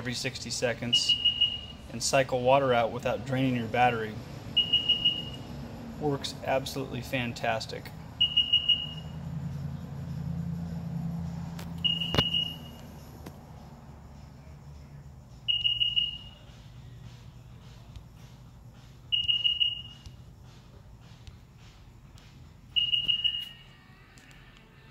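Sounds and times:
high electronic beeps: 0.9s - 1.9s, 4.6s - 5.5s, 8.2s - 9.2s, 11.8s - 12.8s, 15.5s - 16.4s, 19.1s - 20.1s, 22.8s - 23.6s.

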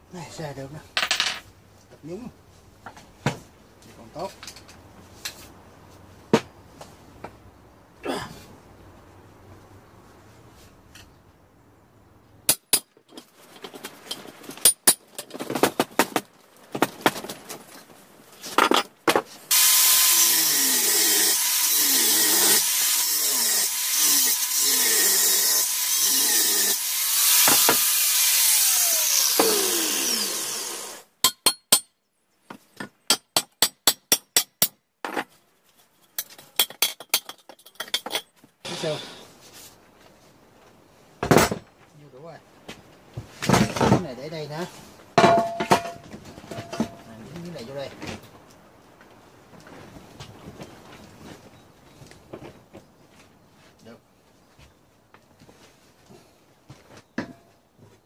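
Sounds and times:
angle grinder cutting metal: 19.5s - 31.0s
metal clanks and knocks: 45.2s - 47.1s.

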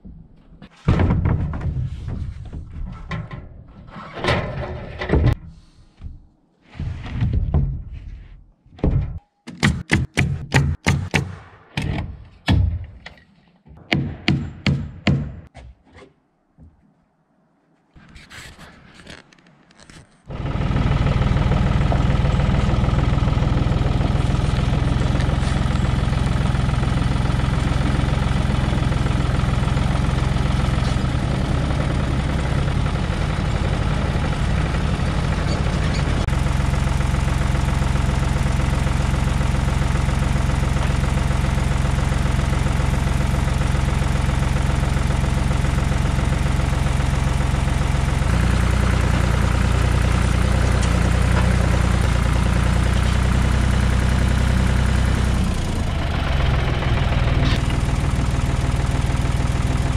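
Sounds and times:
tractor engine humming: 20.3s - 59.9s.

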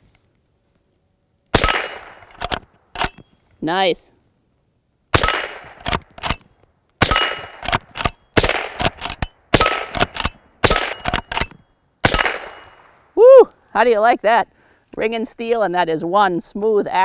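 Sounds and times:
rifle shots: 1.5s - 3.2s, 5.1s - 6.4s, 7.0s - 12.9s
rifle lever clicks: 2.2s - 3.2s, 5.2s - 11.6s
steel plate target ringing: 7.0s - 7.6s.

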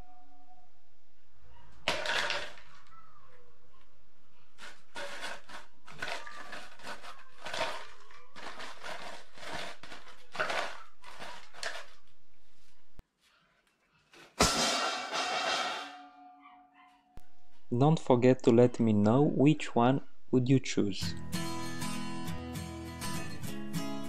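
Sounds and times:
metal dog bowl clattering: 14.5s - 16.2s.

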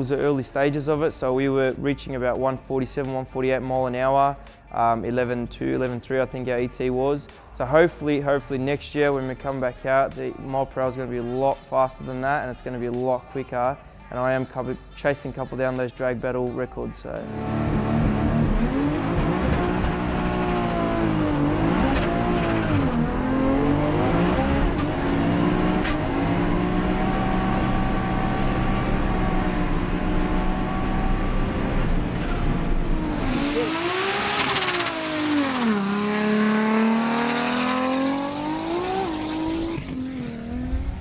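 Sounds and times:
car engine at full throttle: 17.2s - 41.0s.

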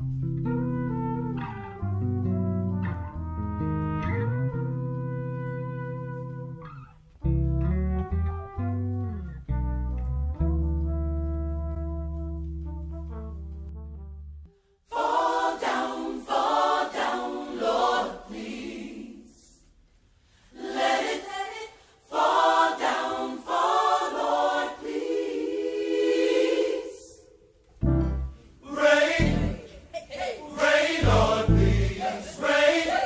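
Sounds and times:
choir singing: 14.9s - 19.7s, 20.5s - 27.6s, 28.2s - 33.0s
deep bass beat: 27.8s - 28.4s, 31.0s - 32.0s.

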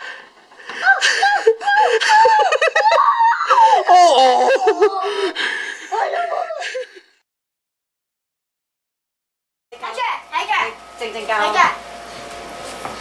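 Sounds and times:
children laughing and giggling: 0.4s - 7.2s.

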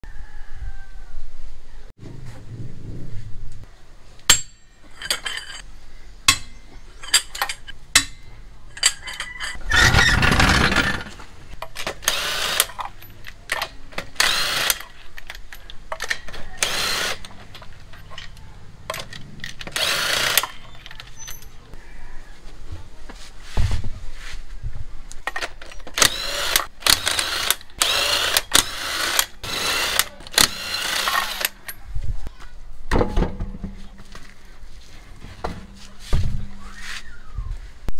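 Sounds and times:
impact wrench hammering: 4.3s - 5.2s, 6.3s - 9.0s
tool and socket clanking: 4.3s - 5.6s, 6.3s - 9.8s, 11.6s - 21.6s.

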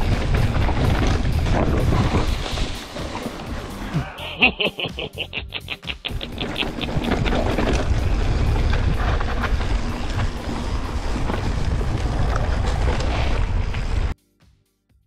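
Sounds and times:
wind rushing over microphone: 0.0s - 4.0s, 6.2s - 14.1s.

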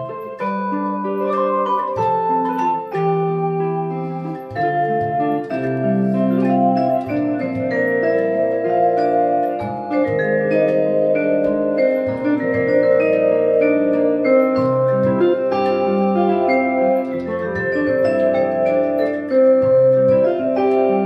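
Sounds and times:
low electric guitar line: 0.0s - 21.0s
vibraphone notes ringing: 0.0s - 21.0s
clay pot drum: 4.3s - 21.0s.

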